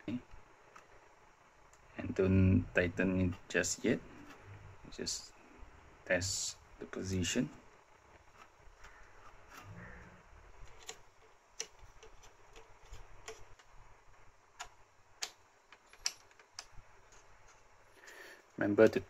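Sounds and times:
metal parts clicking and tapping: 14.6 - 17.6.

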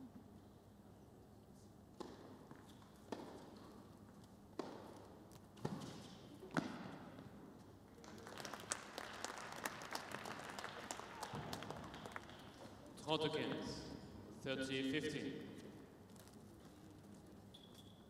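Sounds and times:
tennis ball struck by rackets: 2.0 - 3.7, 4.6 - 7.1
crowd applause: 8.0 - 12.6.

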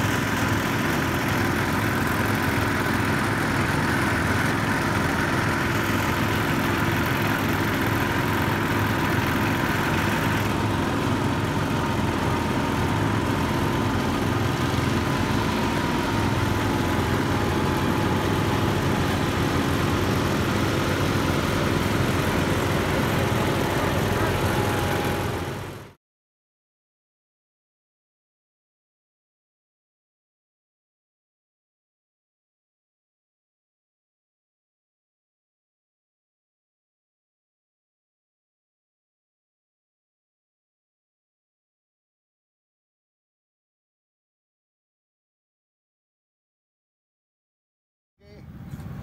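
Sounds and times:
garden tractor engines running: 0.0 - 26.0, 48.2 - 49.0.

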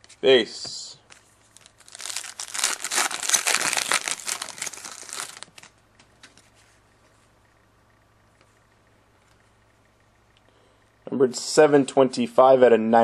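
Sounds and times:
card pack wrapper crinkling: 1.1 - 6.4.

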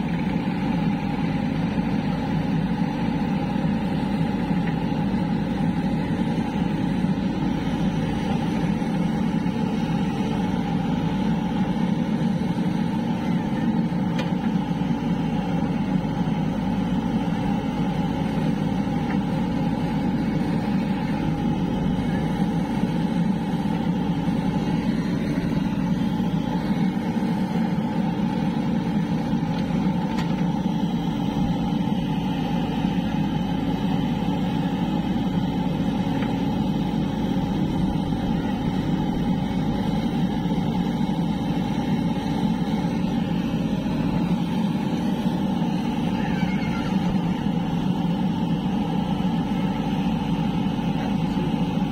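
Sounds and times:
diesel engine running: 0.0 - 51.9.

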